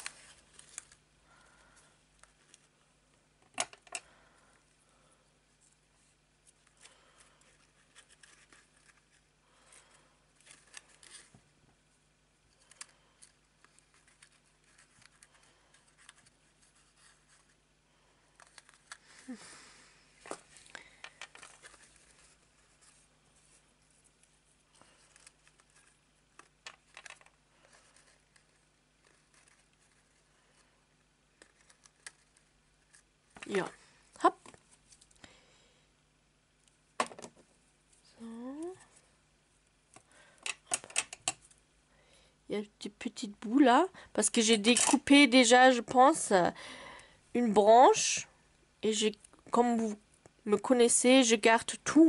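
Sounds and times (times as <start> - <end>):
paper rustling: 0.0 - 1.0, 6.5 - 9.3, 20.2 - 30.7.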